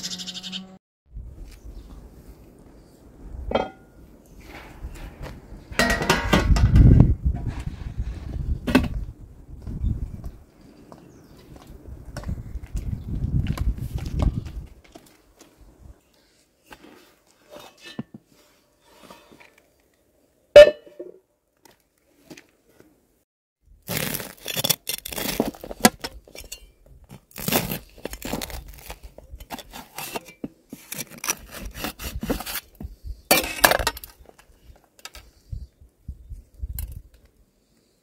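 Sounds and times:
bread crumbling: 23.8 - 25.9, 27.2 - 29.1
metal scraper crunching bread crust: 23.9 - 26.0, 27.3 - 32.7.

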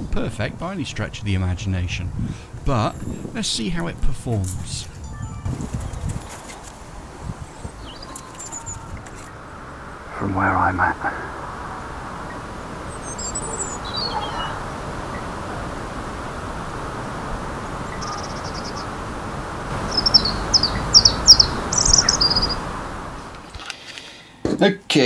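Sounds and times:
steady background hiss: 0.0 - 5.0, 5.6 - 25.0
songbirds singing: 4.6 - 23.4.

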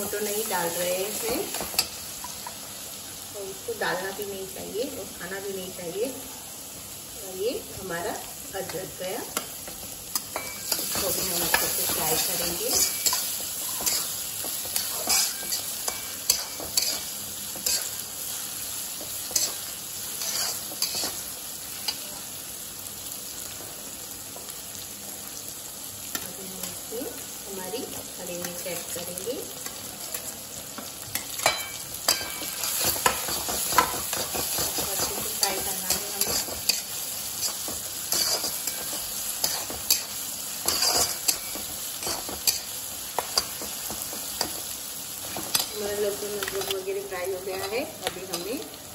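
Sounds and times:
garlic sizzling in hot oil: 0.0 - 48.9
metal spatula scraping a wok: 10.2 - 18.0, 19.3 - 21.2, 32.1 - 42.7.

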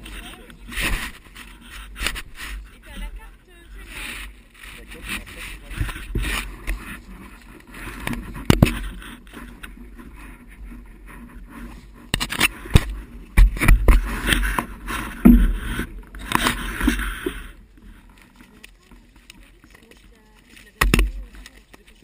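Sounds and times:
wind rumbling on microphone: 0.0 - 22.0
knocks and scrapes from handling: 5.0 - 19.4.

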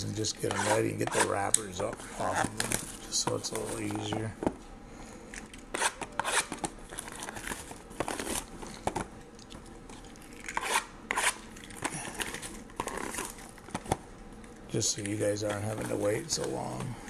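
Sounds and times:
plastic wrap crinkling and tearing: 11.6 - 13.7.

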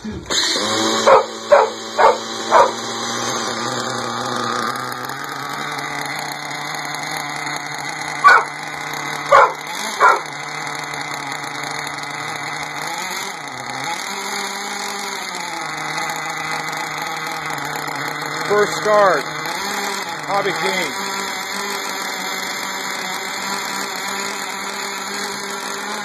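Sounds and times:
model engine idling: 0.1 - 26.0
short loud barks: 0.9 - 2.9, 8.2 - 8.5.

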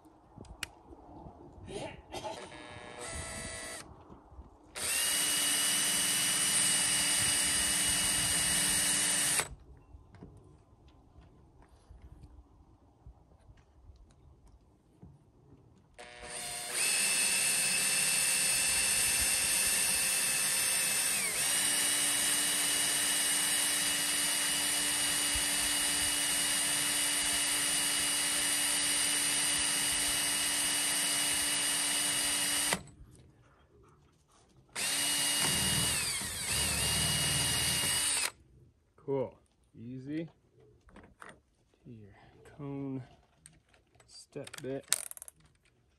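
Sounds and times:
drill whining through sheet metal: 2.4 - 3.9, 4.8 - 9.5, 16.0 - 32.9, 34.8 - 38.3.

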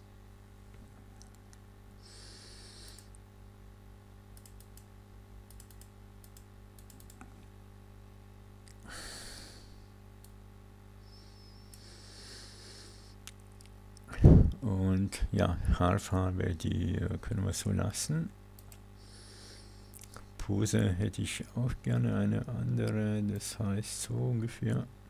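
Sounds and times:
low electrical hum: 0.0 - 25.0
computer mouse clicks: 2.9 - 3.2, 4.4 - 4.9, 5.5 - 7.3, 18.6 - 18.8.

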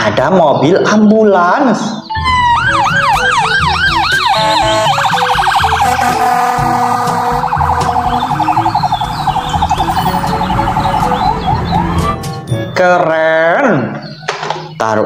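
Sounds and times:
ambulance siren: 2.1 - 12.6.

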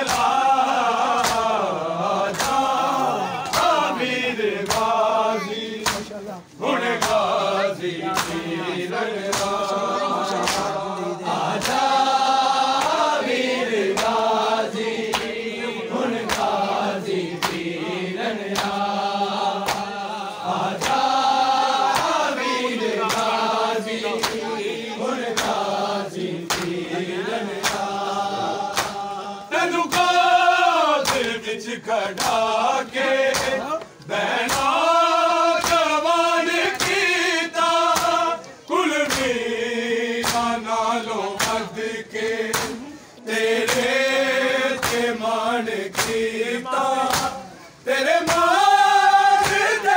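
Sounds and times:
hand slaps on bare chests: 0.0 - 4.0, 4.6 - 5.1, 5.8 - 6.2, 6.9 - 7.4, 8.0 - 8.5, 9.2 - 10.9, 11.5 - 15.5, 16.1 - 17.7, 18.4 - 20.1, 20.7 - 29.2, 29.8 - 34.9, 35.5 - 36.0, 36.6 - 39.5, 40.1 - 40.7, 41.3 - 42.8, 43.6 - 44.0, 44.7 - 46.3, 47.0 - 47.5, 48.2 - 49.9
men chanting in unison: 0.0 - 49.9.

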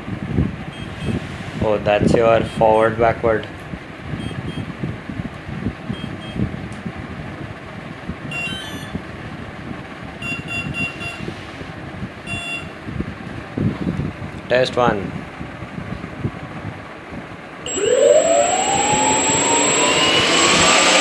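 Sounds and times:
low background hum: 0.6 - 21.0
speed controller beeping: 17.7 - 21.0.

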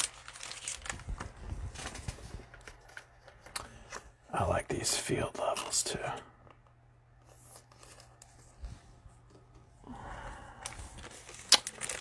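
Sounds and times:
trading cards rustling: 0.0 - 4.1, 7.3 - 8.6, 10.6 - 12.0.

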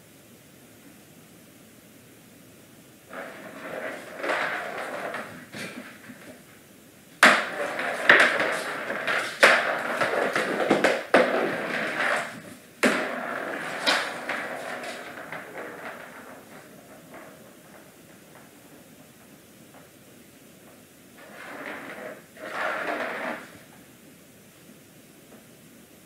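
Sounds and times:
plastic ball rolling and rattling: 3.1 - 6.5, 7.2 - 19.4, 21.2 - 23.8.

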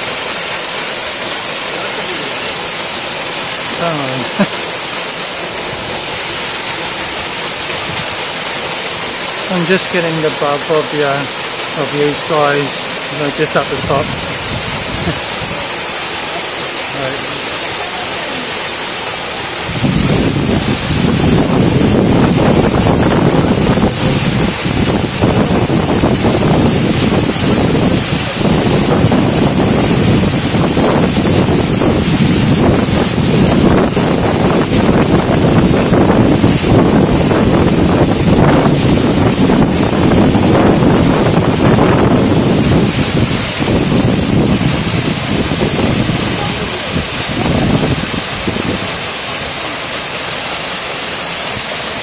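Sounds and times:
waterfall rushing: 0.0 - 52.0
wind buffeting microphone: 13.7 - 15.6, 19.6 - 49.1.

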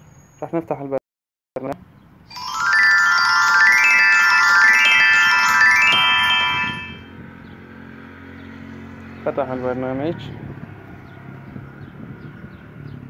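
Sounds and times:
glockenspiel-like app jingle: 2.3 - 7.2.

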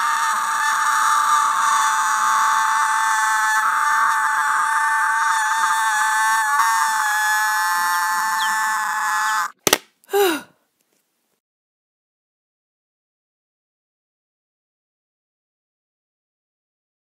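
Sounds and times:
long high-pitched scream: 0.0 - 10.4
short cry falling in pitch: 0.0 - 10.5.

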